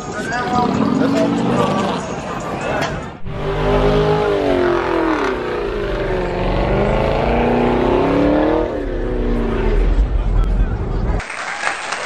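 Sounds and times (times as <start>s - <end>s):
car engine revving: 3.2s - 11.2s.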